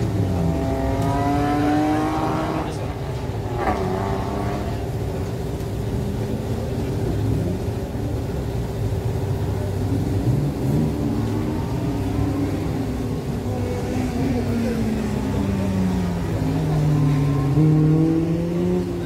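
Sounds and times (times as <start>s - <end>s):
car engine revving: 0.0s - 5.9s, 9.8s - 19.0s.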